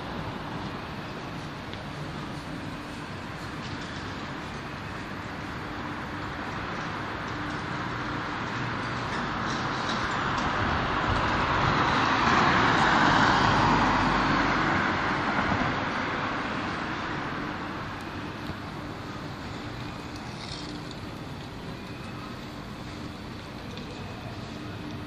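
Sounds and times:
background traffic hum: 0.0 - 25.0
car passing: 10.3 - 23.3.

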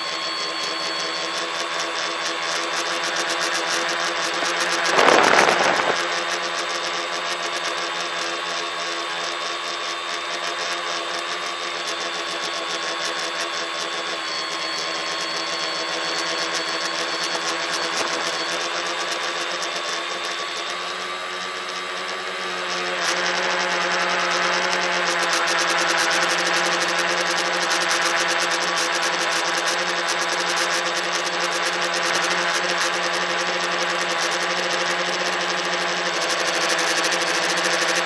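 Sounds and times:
electric motors and propellers buzzing: 0.0 - 38.0
brief rush of noise: 4.5 - 6.2.

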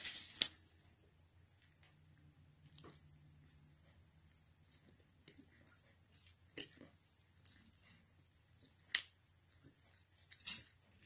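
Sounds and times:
soft chewing: 0.0 - 11.0.

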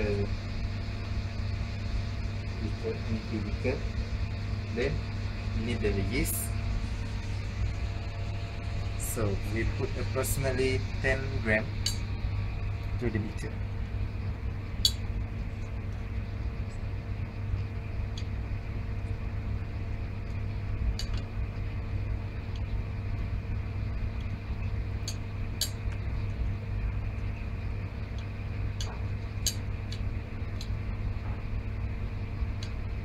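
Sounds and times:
room equipment hum: 0.0 - 33.0.

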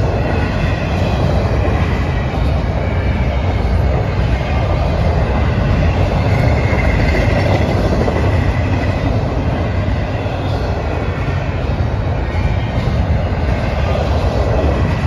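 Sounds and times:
train wheels running on rails: 0.0 - 15.0.

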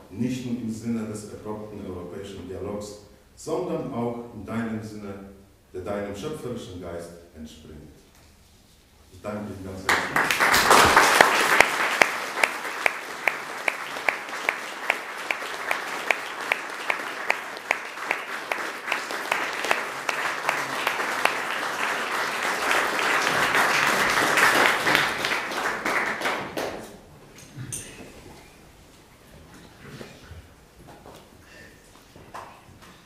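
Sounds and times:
audience applauding: 9.9 - 27.0
close hand claps: 9.9 - 27.0.

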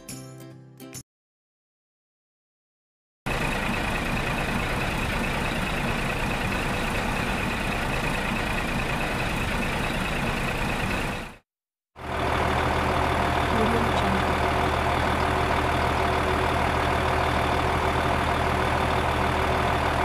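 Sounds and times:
toy tractor motor running: 12.3 - 20.0.

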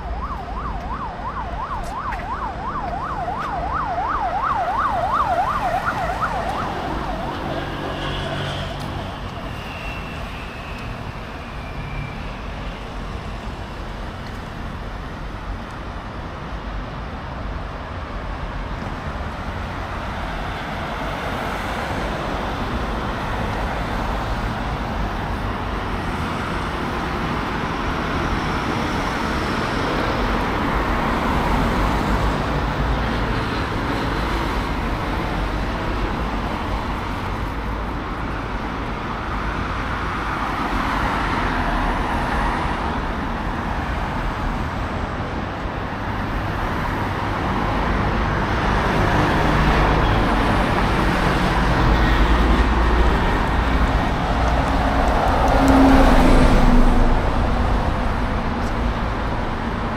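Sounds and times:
cars passing on a street: 0.0 - 59.9.

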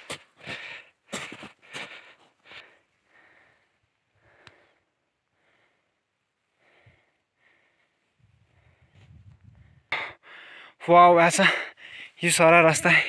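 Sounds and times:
soft breathing: 0.4 - 10.8.

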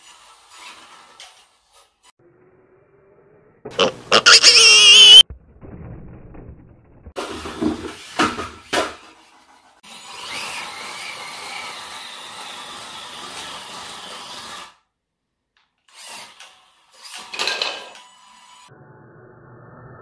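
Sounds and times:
small electric motor whining: 4.2 - 5.2.

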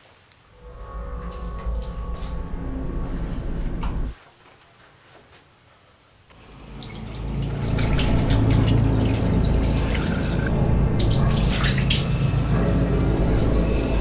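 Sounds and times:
water splashing: 6.4 - 14.0.

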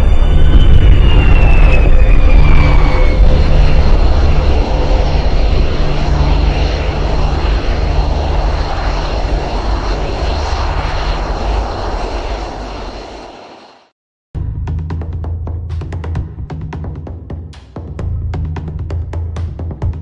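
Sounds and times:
jet engine running: 0.0 - 14.0.

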